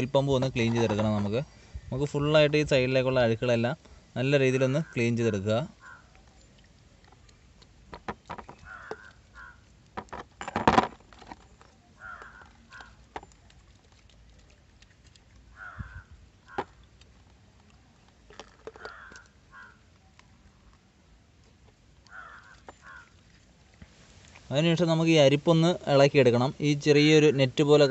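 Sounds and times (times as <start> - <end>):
crows cawing: 4.7 - 5.1, 5.8 - 6.1, 8.6 - 9.7, 12.0 - 13.0, 15.5 - 16.8, 18.7 - 19.8, 22.1 - 23.2.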